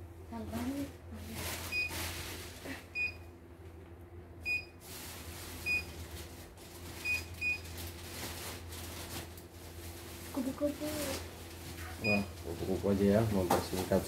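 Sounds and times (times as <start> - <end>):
steady low hum: 0.0 - 14.0
high key-press beeps: 12.0 - 12.3.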